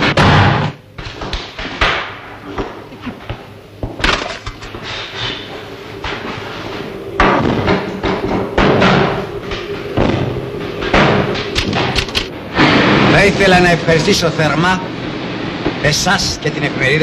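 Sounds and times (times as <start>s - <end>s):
steady typewriter hum: 4.0s - 12.4s.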